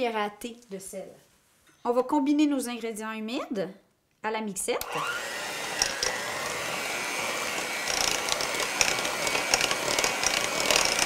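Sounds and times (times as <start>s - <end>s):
electric hand mixer running: 4.8s - 11.0s.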